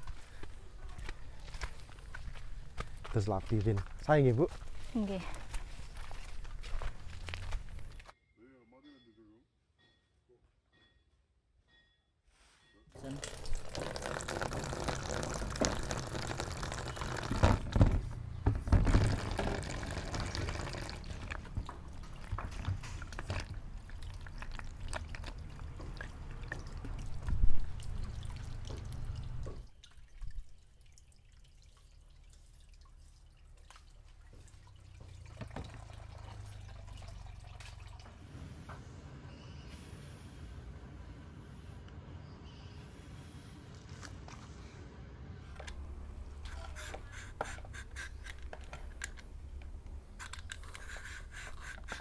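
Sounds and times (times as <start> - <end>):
water pouring into plastic basin: 13.0 - 17.9, 18.8 - 38.2
cucumbers rubbed in water: 46.5 - 48.3, 50.7 - 52.0.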